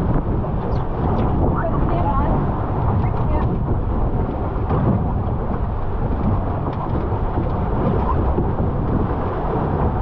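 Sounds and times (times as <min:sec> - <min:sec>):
water rushing past hull: 0:00.0 - 0:10.0
wind rumbling on microphone: 0:00.0 - 0:10.0.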